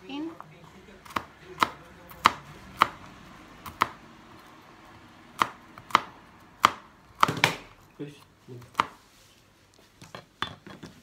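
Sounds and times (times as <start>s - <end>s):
knife chopping on plastic cutting board: 0.4s - 7.8s, 8.6s - 9.0s.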